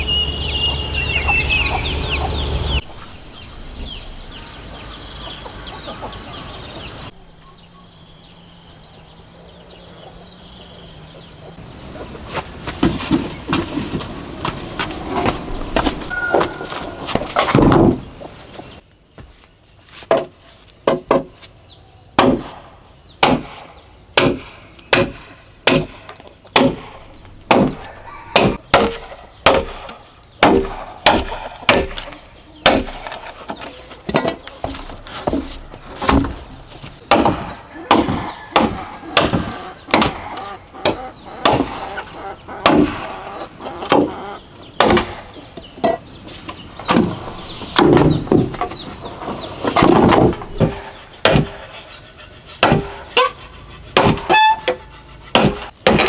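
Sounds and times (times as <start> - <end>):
machete chopping bamboo: 20.1 - 21.3, 22.2 - 33.4, 34.0 - 36.4, 37.0 - 41.8, 42.6 - 43.0, 43.9 - 44.1, 44.8 - 45.2, 46.9 - 48.6, 49.8 - 51.6, 52.6 - 53.3, 53.9 - 56.0.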